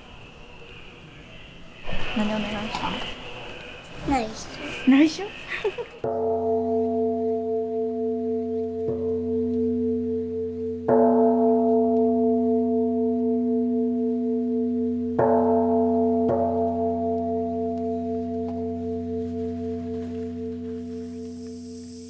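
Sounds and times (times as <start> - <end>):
steady wavering ringing tone: 4.5 - 22.0
bowl bell strikes: 6.0 - 22.0.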